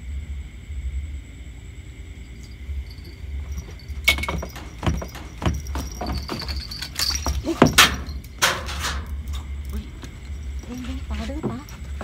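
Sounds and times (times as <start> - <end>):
knocks and clatters: 3.0 - 12.0.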